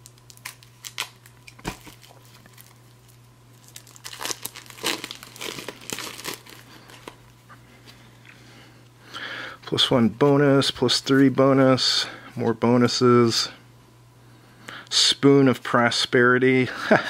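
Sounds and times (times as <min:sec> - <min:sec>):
plastic wrapper crinkling and tearing: 0:00.0 - 0:07.3.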